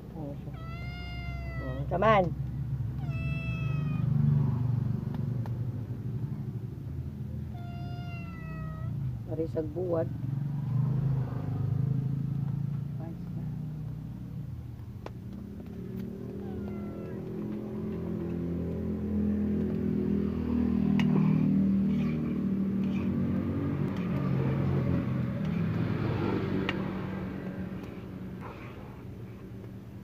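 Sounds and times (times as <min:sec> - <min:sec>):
vehicle engine running: 0:09.0 - 0:30.0.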